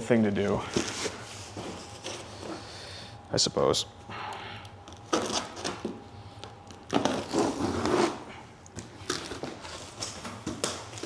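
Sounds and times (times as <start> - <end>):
cardboard scraping and rustling: 6.9 - 8.2.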